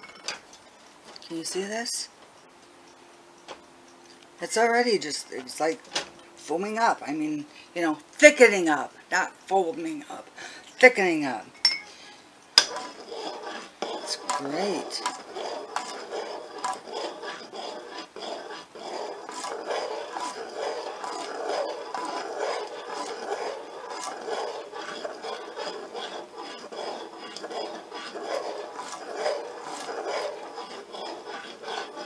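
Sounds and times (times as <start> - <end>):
utensil scraping saucepan: 11.9 - 32.0.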